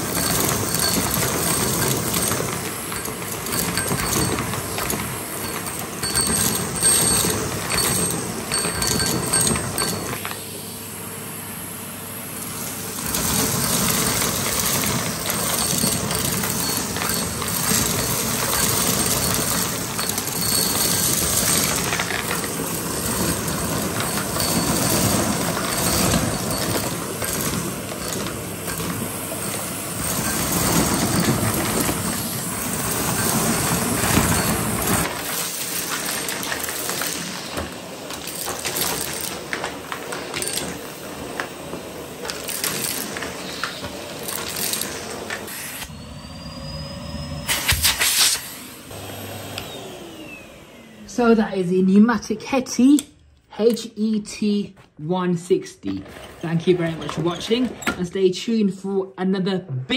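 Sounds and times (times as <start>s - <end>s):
stones clattering up a hose: 0.0s - 10.5s, 12.4s - 45.8s, 47.5s - 48.5s
vacuum cleaner running: 0.0s - 52.5s.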